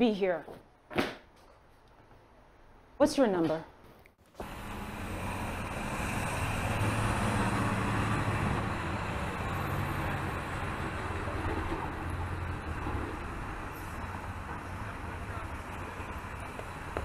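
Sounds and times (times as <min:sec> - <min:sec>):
street traffic rumble: 0:04.2 - 0:17.0.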